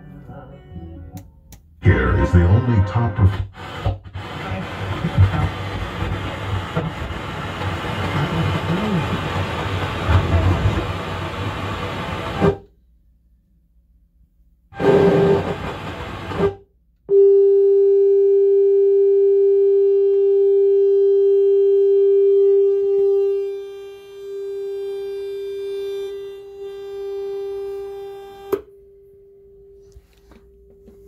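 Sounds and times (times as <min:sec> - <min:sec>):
radio broadcast audio: 0:01.8 - 0:10.9
steady sine test tone: 0:17.1 - 0:31.0.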